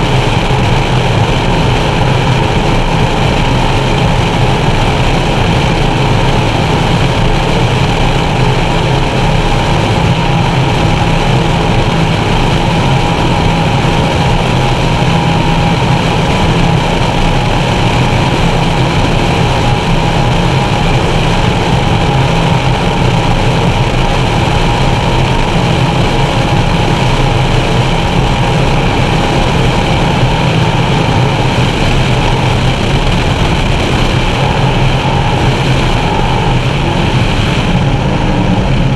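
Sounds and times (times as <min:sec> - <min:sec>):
boat engines droning: 0:00.0 - 0:38.9
hull rushing over water: 0:00.0 - 0:38.9.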